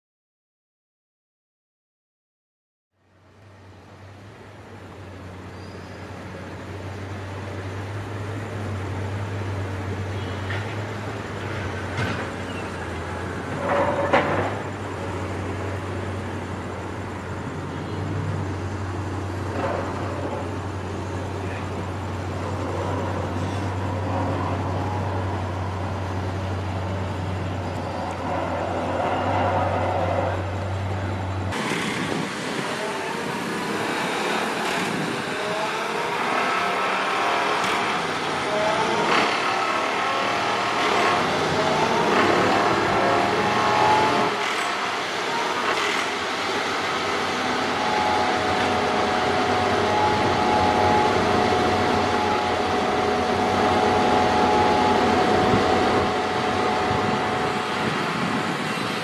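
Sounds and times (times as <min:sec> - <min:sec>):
machinery engine hum: 0:03.0 - 0:59.0
hissy machinery noise: 0:03.4 - 0:59.0
knocks and clanks: 0:11.9 - 0:12.4, 0:13.4 - 0:14.7.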